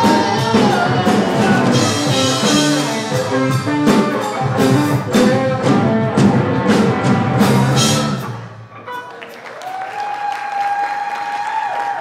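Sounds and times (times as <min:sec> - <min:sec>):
live rock band playing: 0:00.0 - 0:09.1.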